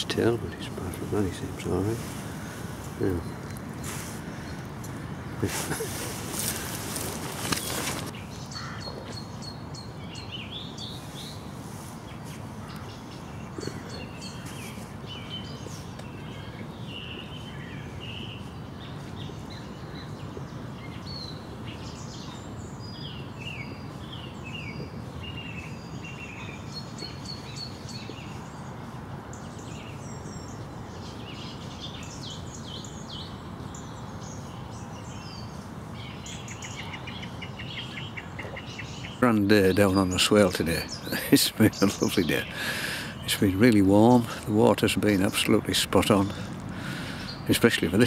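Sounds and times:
steady rushing noise: 0.0 - 8.4
songbirds singing: 0.0 - 48.0.

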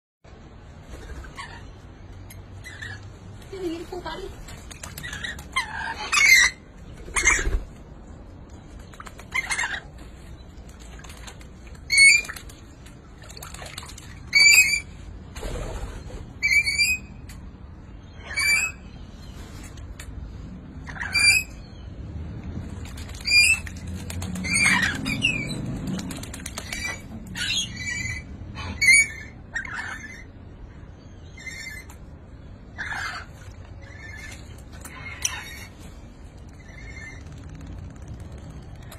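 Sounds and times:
wings flapping and splashing: 3.3 - 6.1, 8.5 - 16.3, 22.4 - 27.4, 34.2 - 38.9.

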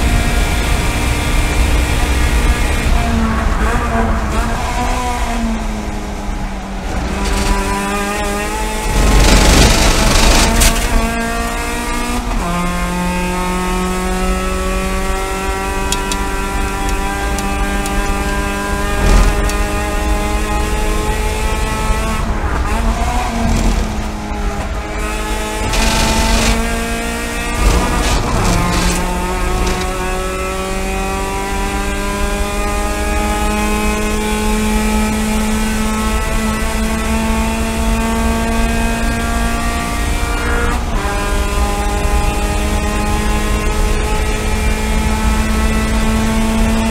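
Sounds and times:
race car engine at full throttle: 0.0 - 46.9
road and wind noise rumble: 0.0 - 46.9
loud rough rushing noise: 3.0 - 13.2, 14.2 - 32.4.

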